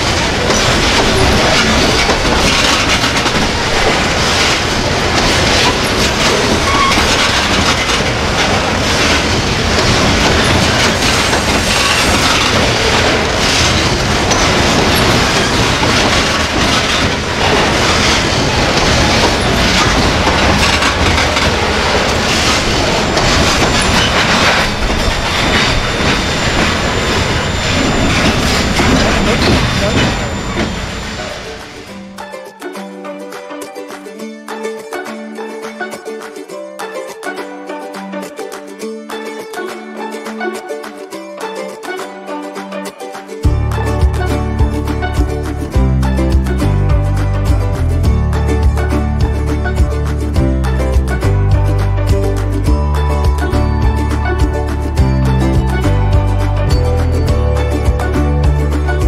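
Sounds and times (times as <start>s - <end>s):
train wheels rushing on rail: 0.0s - 32.3s, 43.4s - 59.0s
wheels clicking over rail joints: 0.0s - 32.5s.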